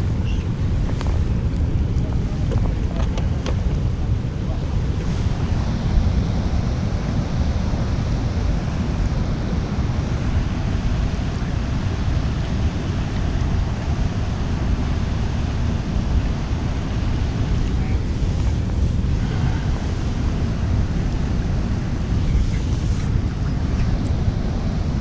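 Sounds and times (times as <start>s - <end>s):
wind buffeting microphone: 0.0s - 25.0s.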